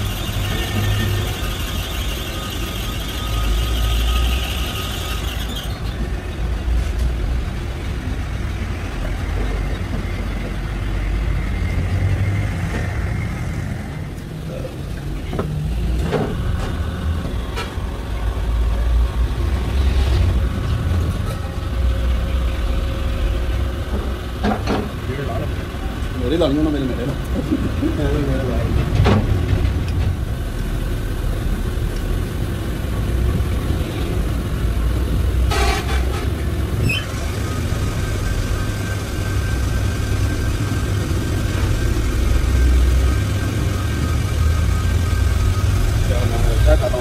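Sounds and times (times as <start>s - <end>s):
grinding machine humming: 0.0s - 6.7s, 36.4s - 47.0s.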